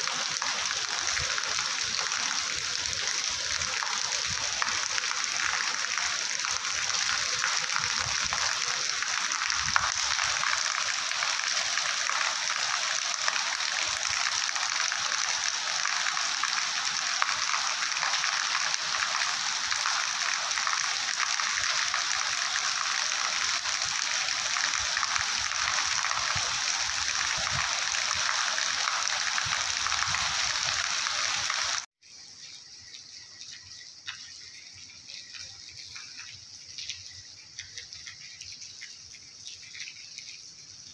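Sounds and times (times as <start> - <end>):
heavy rain on pavement: 0.0 - 31.9
water drips: 0.0 - 40.9.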